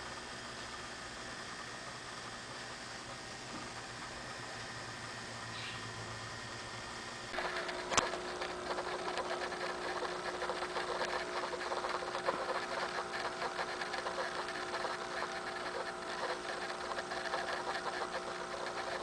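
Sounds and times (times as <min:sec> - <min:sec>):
aquarium pump humming: 0:00.0 - 0:19.0
fast rattling buzz: 0:07.3 - 0:19.0.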